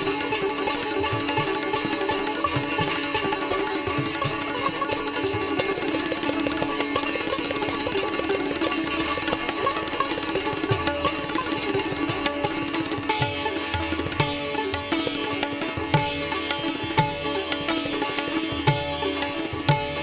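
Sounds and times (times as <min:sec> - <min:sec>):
rapid plucked-string phrases: 0:00.0 - 0:20.0.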